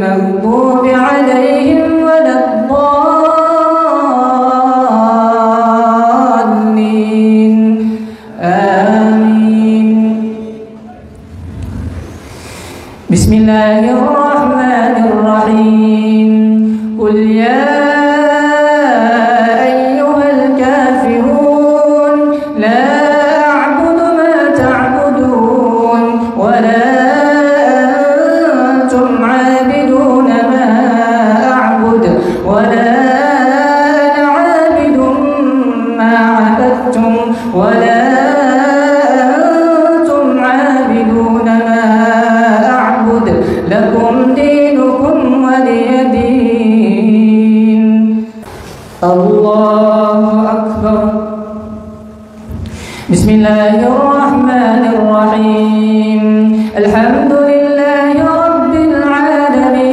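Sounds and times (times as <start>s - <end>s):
short breaths: 7.8s - 8.4s, 11.4s - 13.1s, 16.6s - 17.0s, 43.4s - 43.7s, 52.6s - 53.1s.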